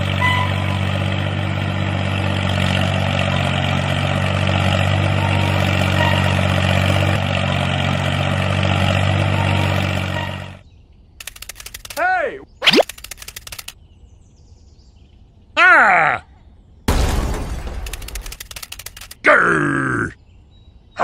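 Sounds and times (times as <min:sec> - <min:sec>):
tractor diesel engine running: 0:00.0 - 0:10.6, 0:11.2 - 0:12.1, 0:12.8 - 0:13.8, 0:17.7 - 0:19.2.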